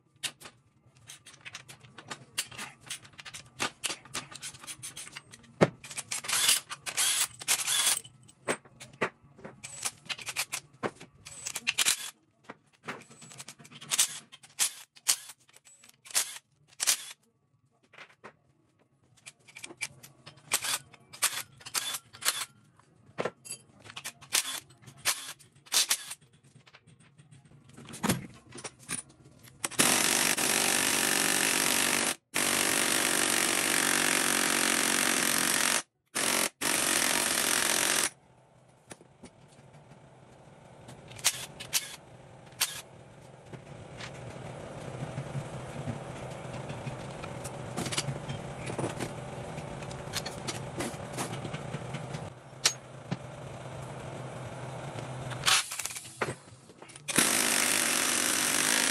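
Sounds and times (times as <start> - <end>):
metal tools clinking: 23.3 - 29.8.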